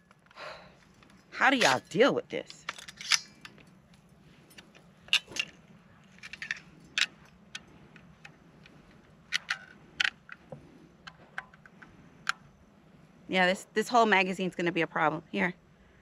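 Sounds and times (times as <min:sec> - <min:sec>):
rifle metallic clicks and rattles: 0:00.0 - 0:12.5.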